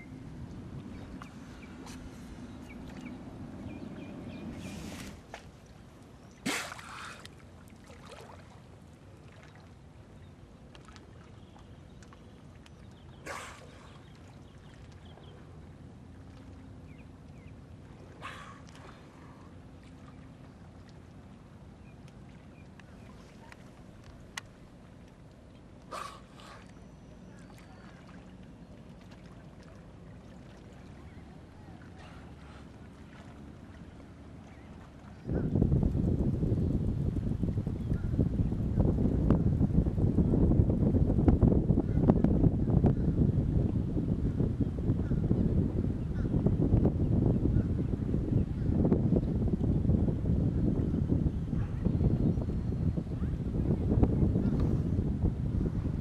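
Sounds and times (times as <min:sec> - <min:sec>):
water noise: 0:00.0 - 0:56.0
wind: 0:00.0 - 0:56.0
dolphin blowing breath: 0:25.9 - 0:26.7.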